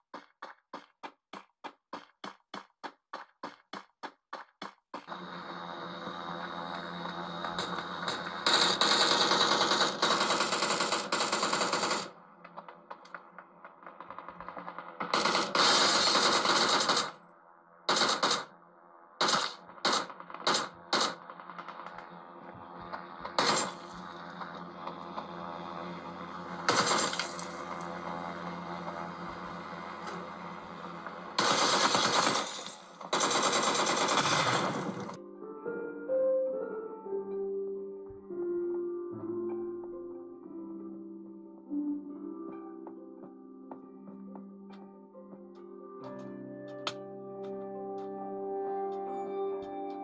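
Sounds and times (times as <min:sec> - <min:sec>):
game background hum: 0:05.0 - 0:35.2
automatic rifle fire: 0:07.4 - 0:12.2, 0:13.8 - 0:17.2, 0:17.9 - 0:18.6, 0:19.2 - 0:22.1, 0:23.3 - 0:25.0, 0:26.6 - 0:27.9, 0:31.4 - 0:35.2.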